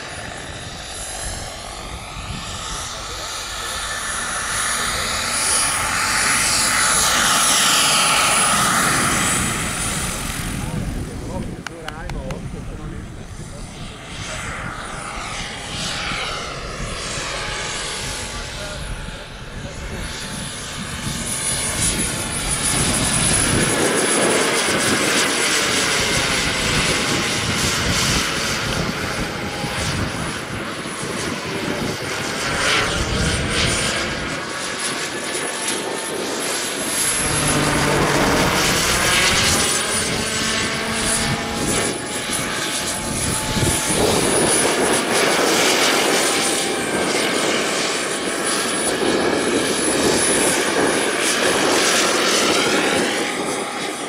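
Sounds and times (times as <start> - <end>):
model helicopter turbine whine: 0.0 - 54.0
rotor rushing: 21.0 - 47.0.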